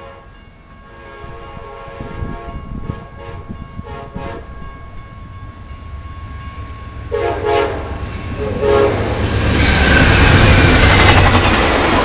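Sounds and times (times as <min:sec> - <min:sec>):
train air horn blasts: 0:00.0 - 0:04.6, 0:07.1 - 0:09.2
low rumble of train: 0:00.0 - 0:12.0.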